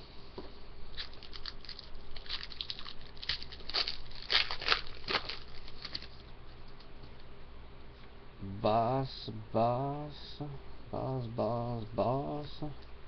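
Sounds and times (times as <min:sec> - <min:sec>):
trading cards crinkling and flicking: 0:00.9 - 0:06.8.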